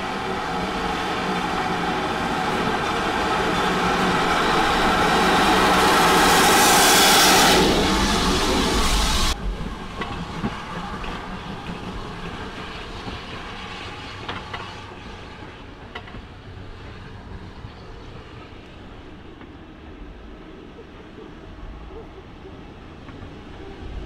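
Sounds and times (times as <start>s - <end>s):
loud steam hiss: 0.0s - 11.0s.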